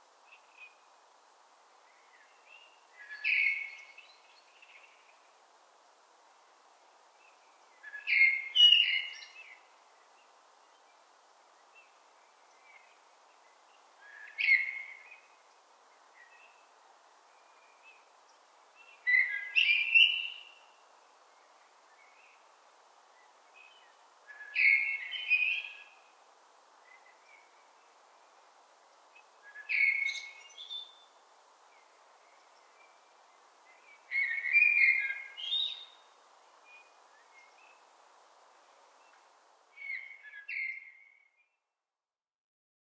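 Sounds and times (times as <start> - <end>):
faint steady background noise: 0.0 - 42.2
blackbird singing: 2.2 - 5.0, 7.8 - 9.6, 14.0 - 15.3, 19.1 - 20.6, 23.6 - 26.0, 29.2 - 31.1, 33.7 - 36.1, 39.8 - 41.5.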